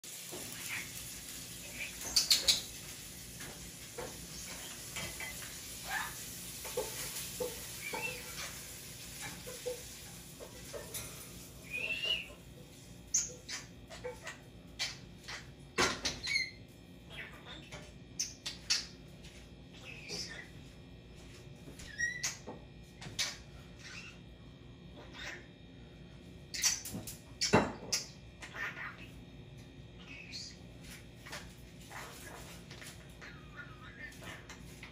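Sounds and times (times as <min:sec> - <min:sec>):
starling whistles and chirps: 0:11.6 - 0:12.4.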